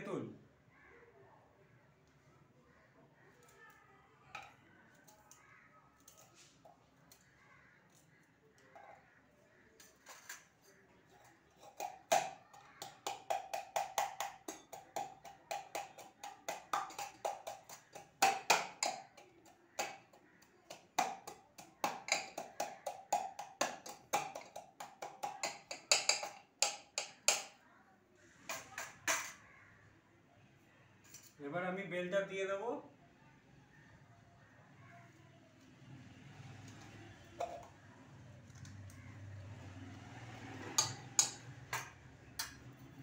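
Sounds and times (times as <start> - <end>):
rolling pin pounding in metal mug: 11.6 - 27.6, 40.8 - 42.6.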